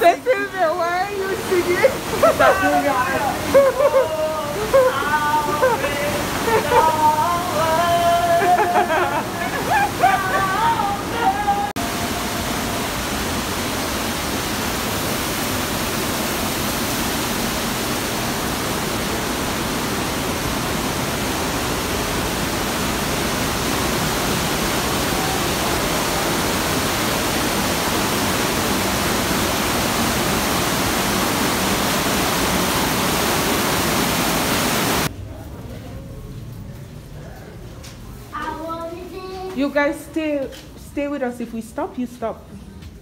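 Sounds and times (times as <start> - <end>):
waterfall rushing in a cave: 0.0 - 35.1.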